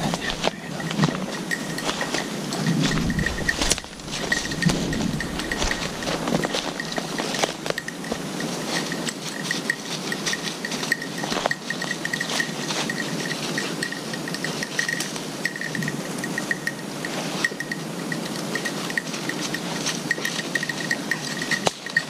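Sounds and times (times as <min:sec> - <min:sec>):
footsteps crunching dry leaves: 0:00.0 - 0:13.6
small bell tinkling: 0:00.0 - 0:22.0.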